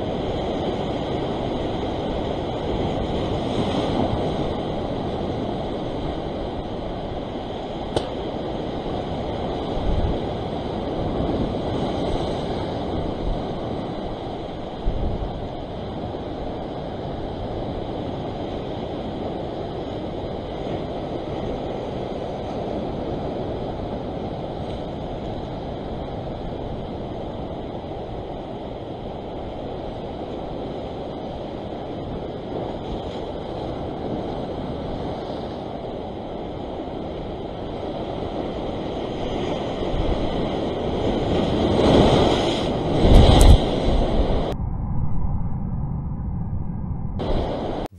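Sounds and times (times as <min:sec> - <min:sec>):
wind thumps on microphone: 0:07.7 - 0:16.1, 0:39.4 - 0:47.9
surf breaking on rocks: 0:37.2 - 0:44.6.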